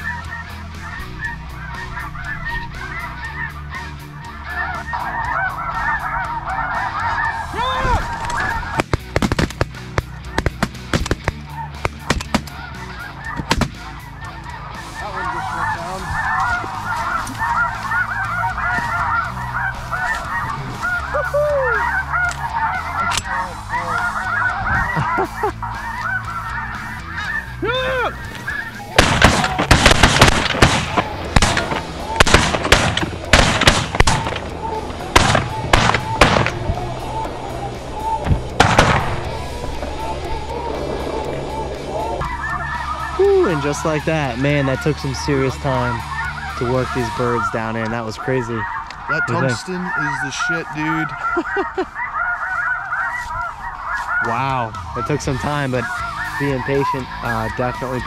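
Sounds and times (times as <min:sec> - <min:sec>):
low background music: 0:00.0 - 0:58.0
snow geese honking: 0:00.0 - 0:58.0
sharp bangs: 0:08.6 - 0:12.6, 0:13.4 - 0:13.8, 0:28.9 - 0:36.8, 0:38.2 - 0:39.4.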